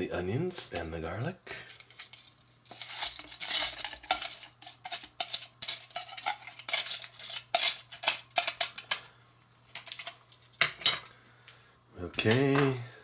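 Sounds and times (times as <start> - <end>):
metal fork scraping metal pan: 2.7 - 8.6.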